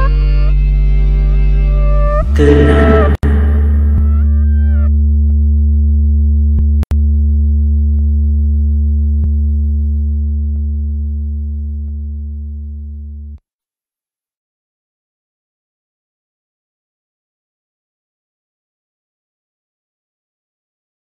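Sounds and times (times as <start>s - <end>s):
low electronic drone: 2.3s - 4.9s.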